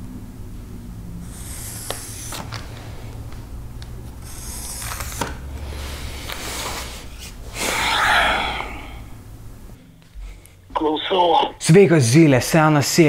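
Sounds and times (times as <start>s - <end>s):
person sighing heavily: 7.5s - 9.2s.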